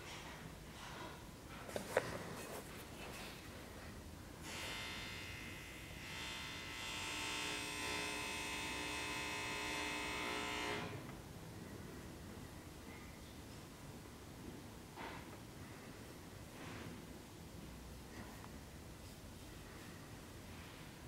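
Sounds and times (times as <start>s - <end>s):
electric buzz: 4.4s - 11.1s.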